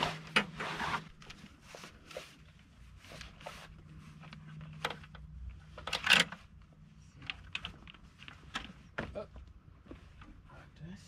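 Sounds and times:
fabric scraping rustle: 0:00.0 - 0:04.7.

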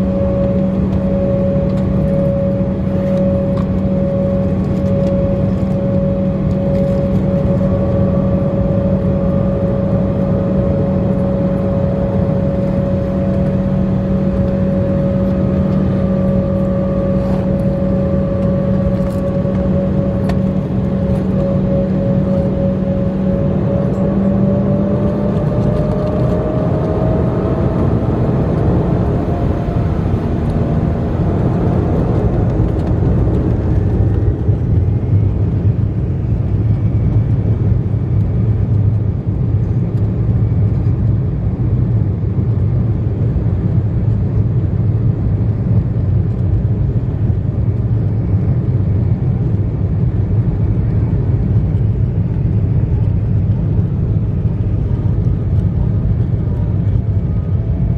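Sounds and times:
jet engines spooling up: 0:00.0 - 0:37.8
jet engine rumble: 0:00.0 - 0:57.9.

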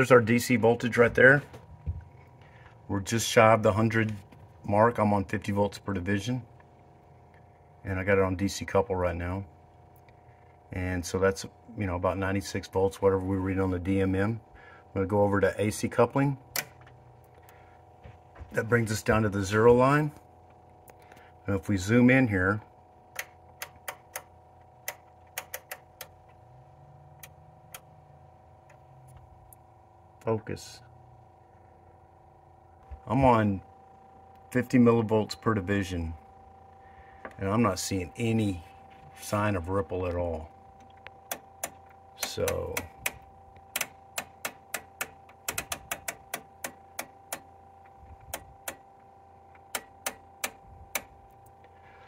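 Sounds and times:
faint steady hum: 0:00.0 - 0:52.0
rotary switch clicking: 0:23.1 - 0:26.2, 0:40.8 - 0:47.5, 0:48.2 - 0:48.8, 0:49.6 - 0:51.2
rotary knob clicking: 0:43.8 - 0:47.4.

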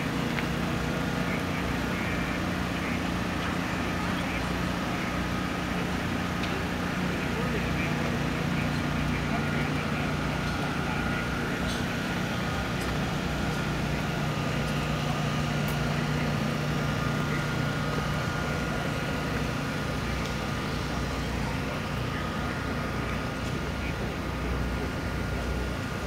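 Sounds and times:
faint high whine: 0:00.0 - 0:26.0
low mechanical hum: 0:00.0 - 0:26.0.

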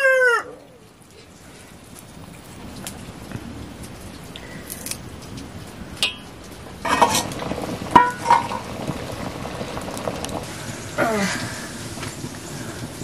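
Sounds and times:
metal cookware clinking: 0:06.0 - 0:08.8
metal clattering rattle: 0:06.8 - 0:08.7.

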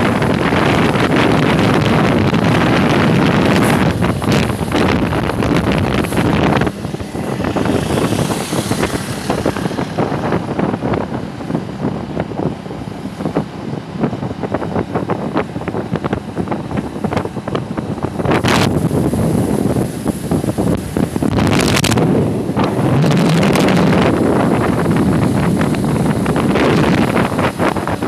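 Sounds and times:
motorcycle running on road: 0:00.0 - 0:28.0
wind buffeting microphone: 0:00.0 - 0:28.0.

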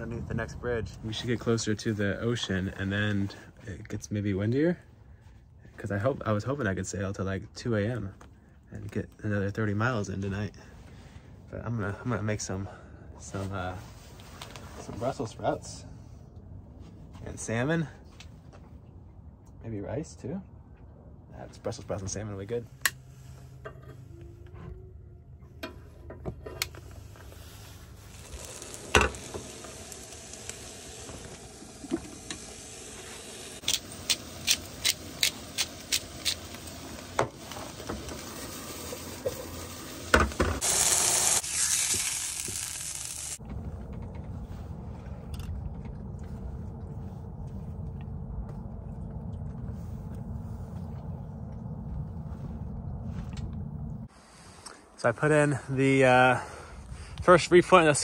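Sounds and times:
steady low rumble: 0:00.0 - 0:07.6, 0:42.3 - 0:54.5
food sizzling in frying pan: 0:27.6 - 0:43.4.

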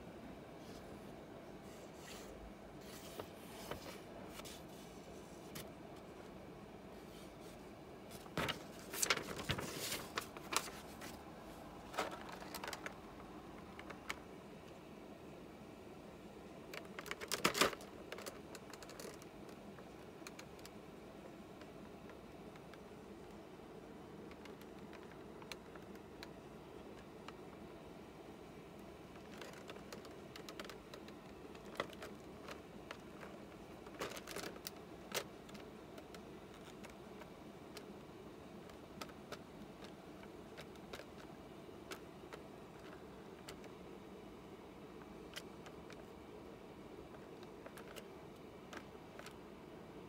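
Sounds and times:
plastic tray crackling and clicking: 0:11.8 - 0:14.8, 0:16.6 - 0:23.4, 0:24.0 - 0:27.8, 0:28.8 - 0:43.9, 0:44.9 - 0:46.2, 0:47.0 - 0:49.4.

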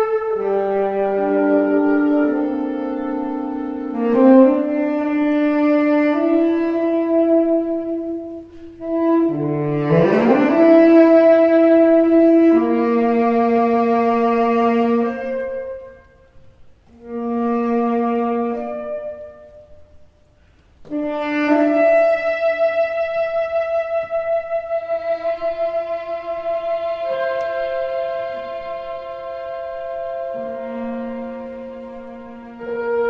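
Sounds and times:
chamber ensemble playing chords: 0:00.0 - 0:19.9, 0:20.8 - 0:33.0
tenor saxophone solo: 0:00.0 - 0:33.0.

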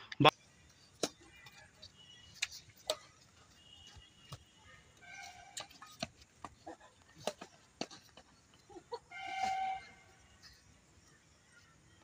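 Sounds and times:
rackets striking shuttlecock: 0:00.9 - 0:01.7, 0:02.3 - 0:03.3, 0:05.2 - 0:08.3.

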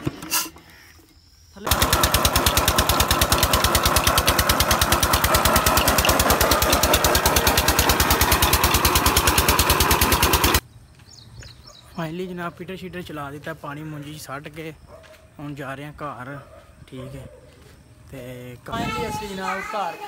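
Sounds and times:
diesel engine running: 0:01.7 - 0:10.6.

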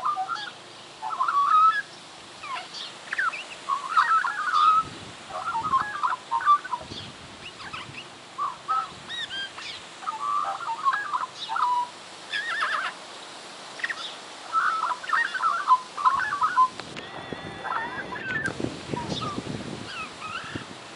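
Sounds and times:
magpie warbling song: 0:00.0 - 0:13.0, 0:13.8 - 0:20.7
magpie imitating horse whinny: 0:16.2 - 0:19.3.

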